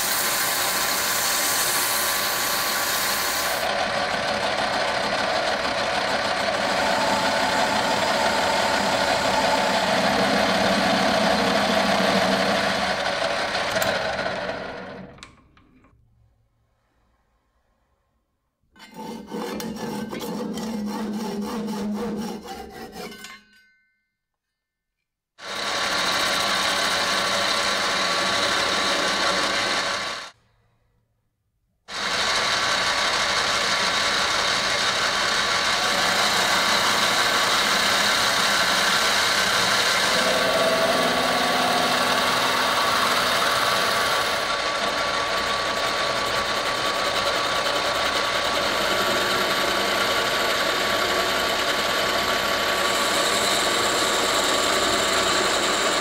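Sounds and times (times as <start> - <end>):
hand saw cutting wood: 0.0 - 14.0, 18.8 - 23.2, 25.5 - 30.3, 31.9 - 56.0
tool cutting spinning workpiece: 0.0 - 15.3, 18.8 - 23.5, 25.4 - 30.4, 31.9 - 56.0
lathe whirring: 0.0 - 15.7, 18.8 - 23.2, 25.4 - 30.4, 31.9 - 56.0.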